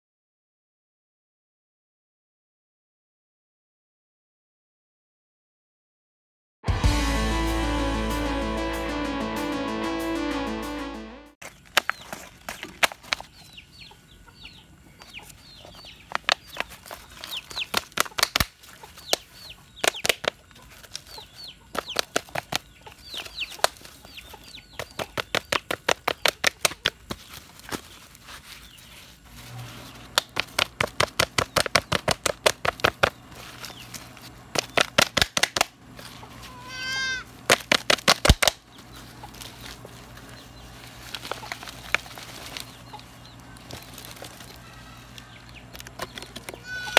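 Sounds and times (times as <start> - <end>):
chickens clucking: 11.9 - 27.1, 35.8 - 37.4, 38.7 - 46.9
chicks peeping: 11.9 - 27.2, 30.0 - 34.8, 38.2 - 46.9
hen calling: 36.1 - 37.4, 46.5 - 46.9.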